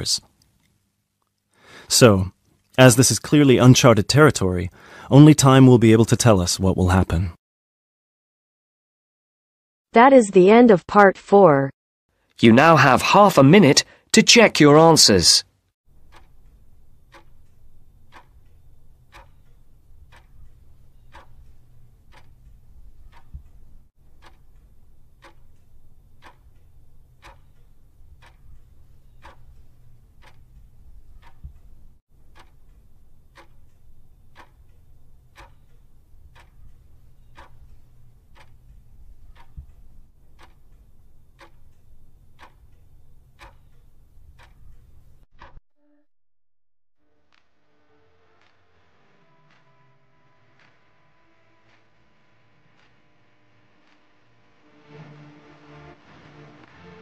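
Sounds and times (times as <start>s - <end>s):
clock ticking: 12.3s - 45.6s
low hum: 49.1s - 57.0s.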